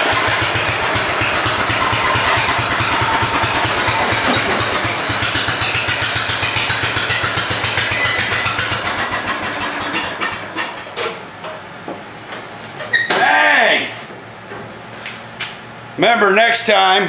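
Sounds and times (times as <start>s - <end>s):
lawn tractor engine running: 0.0s - 10.9s.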